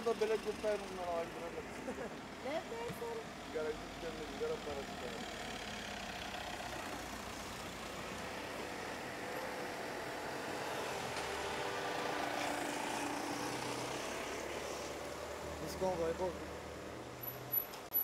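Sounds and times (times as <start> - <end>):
vehicle engine and road noise: 0.0 - 18.0.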